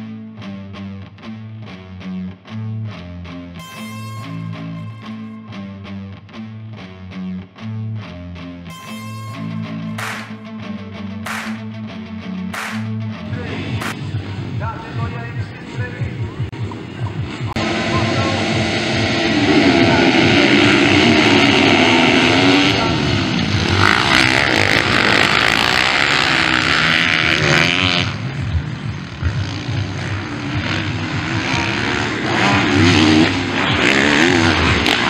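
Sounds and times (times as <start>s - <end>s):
motocross bikes revving together: 10.0s - 10.3s, 17.3s - 35.0s
motorbike revving past: 17.6s - 35.0s.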